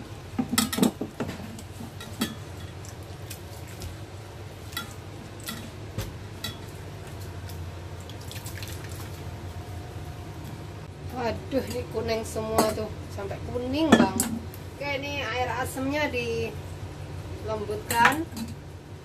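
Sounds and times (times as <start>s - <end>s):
steady low hum: 0.0s - 19.0s
small drips and clicks: 6.4s - 9.2s
wet squishing of squeezed pulp: 7.0s - 9.4s.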